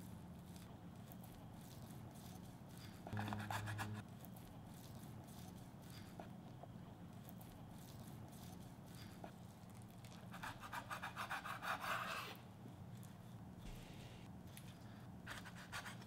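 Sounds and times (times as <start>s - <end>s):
faint low hum: 0.0s - 10.5s
knife sawing through sausage: 1.7s - 4.0s, 10.3s - 12.4s.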